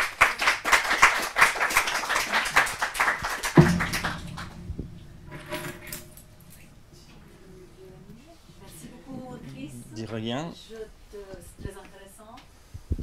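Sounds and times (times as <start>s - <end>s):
audience applauding: 0.0s - 4.6s
low thump: 3.5s - 9.3s.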